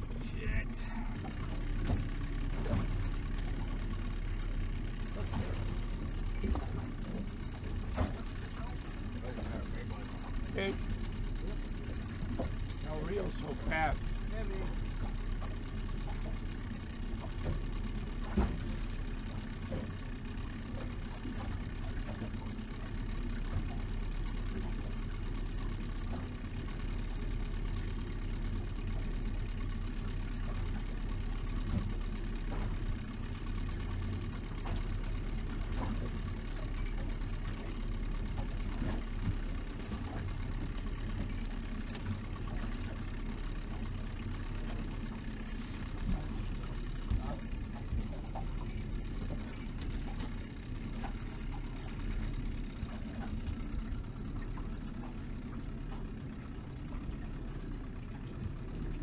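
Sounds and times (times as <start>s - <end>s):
outboard motor running: 0.0s - 59.0s.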